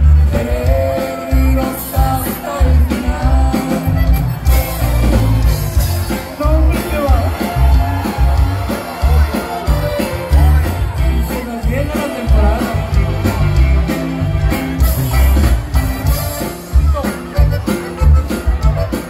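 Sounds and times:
man singing: 0.0s - 14.2s
accordion: 0.0s - 19.0s
bass line: 0.0s - 19.0s
drums: 0.0s - 19.0s
guitar: 0.0s - 19.0s.

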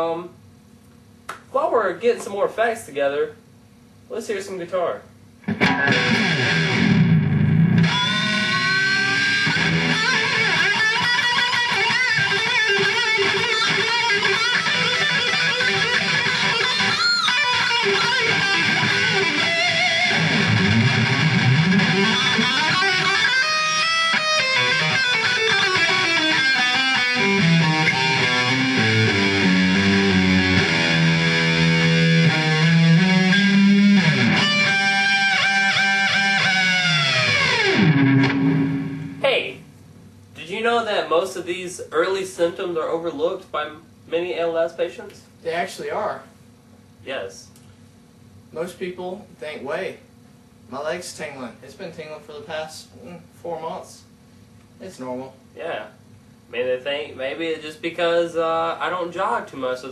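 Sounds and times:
electric guitar solo: 5.4s - 39.2s.

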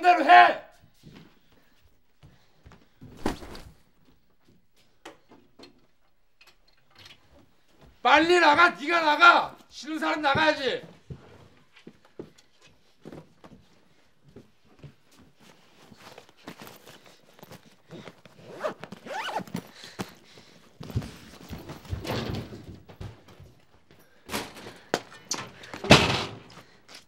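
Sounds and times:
cloth bag rustling: 15.8s - 20.0s
zipper being pulled: 18.4s - 19.6s.

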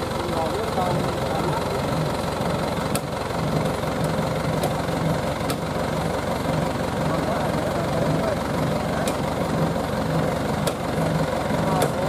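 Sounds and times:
truck engine idling: 0.0s - 12.0s.

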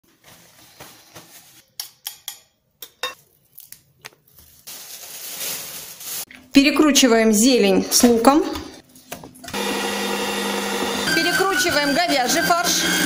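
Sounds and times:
herbs rustling: 3.2s - 6.3s.

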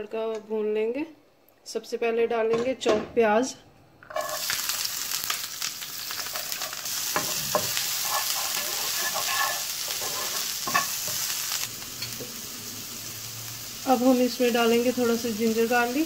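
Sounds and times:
onions sizzling in oil: 4.1s - 16.0s
wooden spatula scraping pan: 6.2s - 11.2s.

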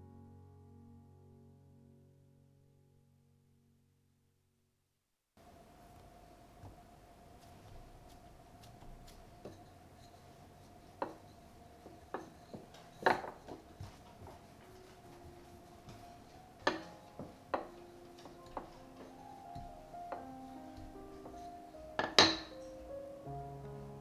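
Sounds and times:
faint steady hum: 5.4s - 24.0s
rolling pin knocking on stone: 11.9s - 13.8s, 16.6s - 20.2s, 22.0s - 22.6s.

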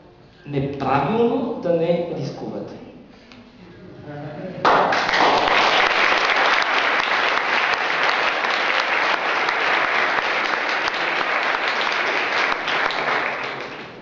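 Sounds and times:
audience applauding: 4.6s - 14.0s.

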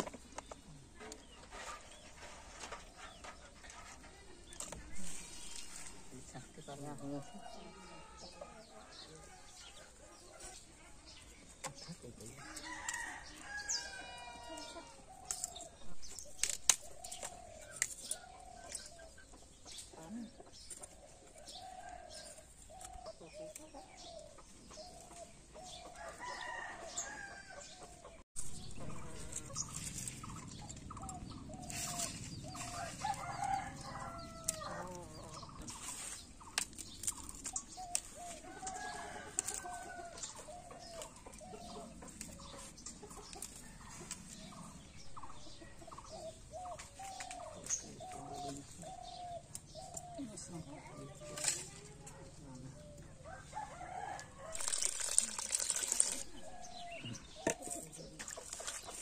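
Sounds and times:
chickens clucking: 0.0s - 7.0s, 16.4s - 21.6s, 22.3s - 26.4s, 27.0s - 54.2s, 56.0s - 59.0s.

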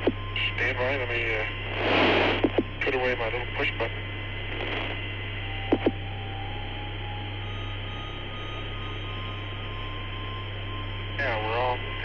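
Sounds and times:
radio hiss: 0.0s - 6.0s, 11.2s - 12.0s
low hum: 0.0s - 12.0s.

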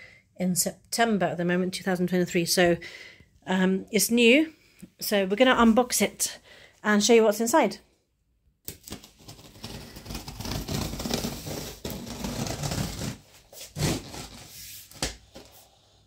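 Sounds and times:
scissors cutting tape and cardboard: 8.6s - 13.2s.

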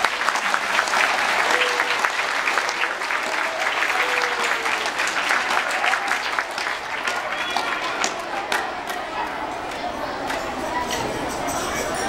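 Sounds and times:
children applauding: 0.0s - 12.0s.

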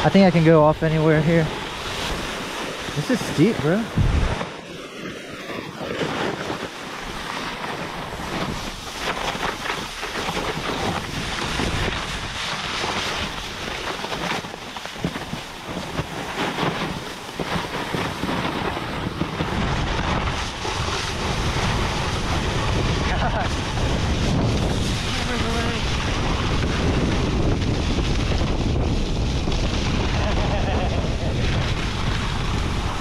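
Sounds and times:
board scraping on snow: 0.0s - 33.0s
wind buffeting microphone: 0.0s - 33.0s.

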